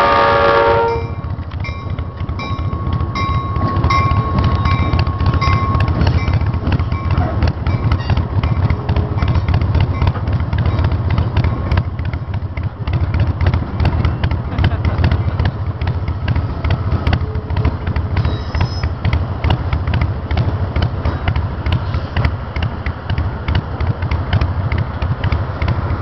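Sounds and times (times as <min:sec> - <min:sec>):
locomotive horn blast: 0:00.0 - 0:01.3
crossing bell ringing: 0:00.0 - 0:12.3
train rumbling past: 0:00.0 - 0:26.0.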